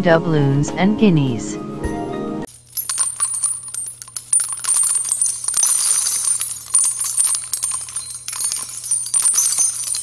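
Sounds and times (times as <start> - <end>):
coins jingling: 2.5 - 10.0.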